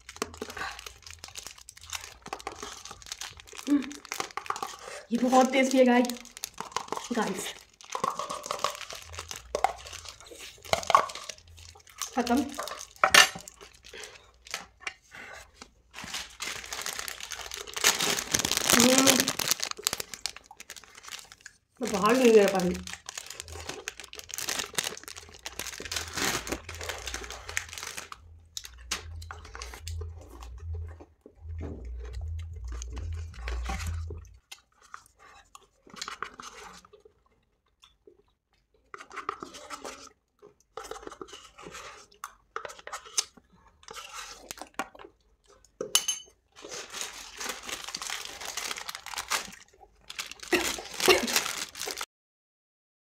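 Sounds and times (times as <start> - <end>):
paper wrapper crinkling and tearing: 0.0 - 14.8, 15.6 - 35.1, 46.6 - 52.1
person chewing and crunching: 0.0 - 52.1
low hum: 24.3 - 34.4.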